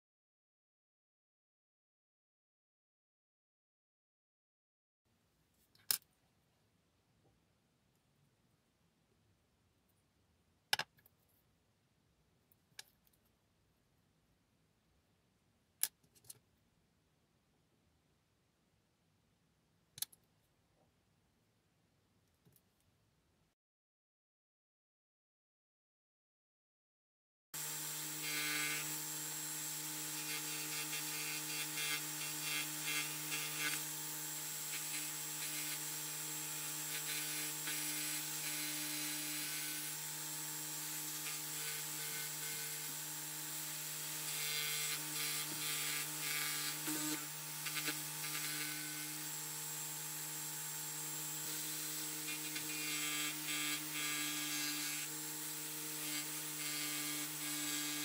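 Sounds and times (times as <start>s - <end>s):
saw blade rasping through wood: 27.6s - 58.0s
scroll saw humming: 27.6s - 58.0s.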